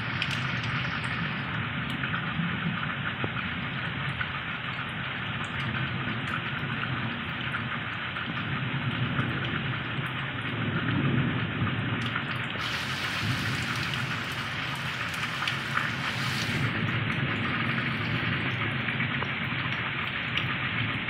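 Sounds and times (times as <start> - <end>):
heavy rain on ground: 0.0 - 21.0
low rumble: 12.5 - 21.0.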